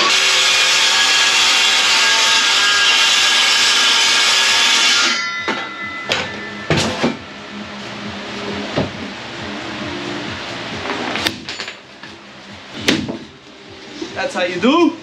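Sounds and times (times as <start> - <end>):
power saw cutting wood: 0.0 - 5.3
saw blade spinning down: 0.0 - 6.8
wood knocking: 12.8 - 13.3.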